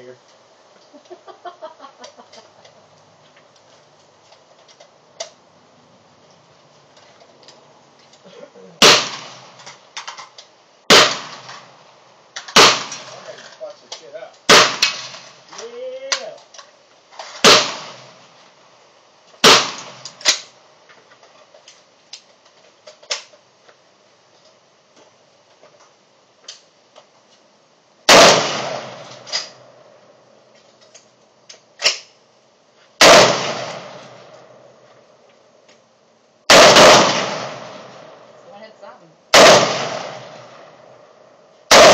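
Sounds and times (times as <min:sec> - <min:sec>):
rifle shots with echo: 0:08.8 - 0:09.6, 0:10.9 - 0:11.7, 0:12.5 - 0:13.3, 0:14.5 - 0:15.4, 0:17.4 - 0:18.2, 0:19.4 - 0:20.5, 0:28.1 - 0:29.6, 0:33.0 - 0:34.3, 0:36.5 - 0:38.3, 0:39.3 - 0:40.8, 0:41.7 - 0:41.9.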